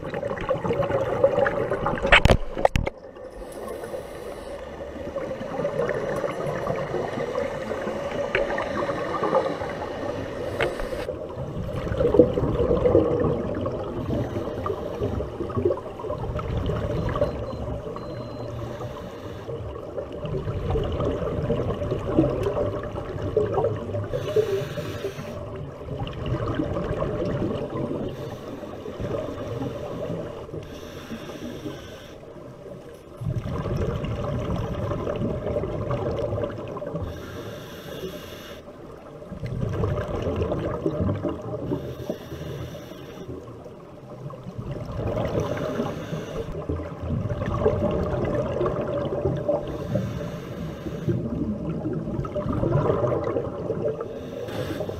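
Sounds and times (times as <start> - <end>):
exhaled air bubbling: 0.0 - 19.0, 19.6 - 31.7, 33.1 - 38.2, 39.2 - 54.9
regulator inhalation hiss: 3.4 - 4.7, 8.8 - 11.1, 18.5 - 19.5, 24.2 - 25.4, 28.2 - 32.3, 37.1 - 38.7, 41.8 - 43.4, 45.4 - 46.6, 49.6 - 51.2, 54.1 - 54.9.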